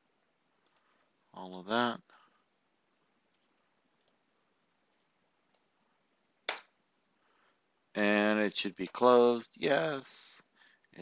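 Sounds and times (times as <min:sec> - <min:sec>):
computer mouse clicks: 0:00.6 - 0:00.9, 0:03.3 - 0:04.2, 0:04.9 - 0:05.7.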